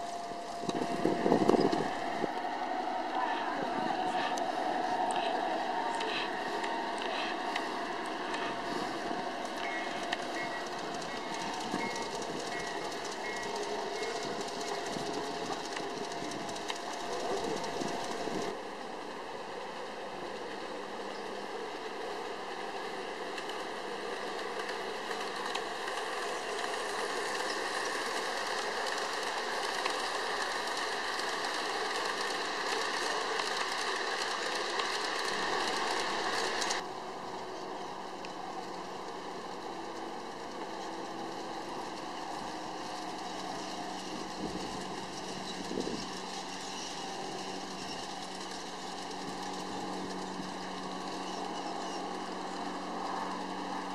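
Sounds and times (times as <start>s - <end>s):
model train rolling on track: 0.0s - 53.9s
track clicks: 4.2s - 18.6s
model train wheels clattering on rails: 9.4s - 18.6s, 23.2s - 36.8s.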